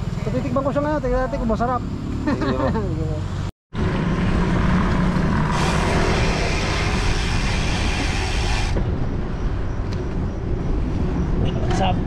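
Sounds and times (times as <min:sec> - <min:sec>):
road traffic hum: 0:00.0 - 0:12.0
rushing hiss of passing vehicle: 0:04.7 - 0:08.8.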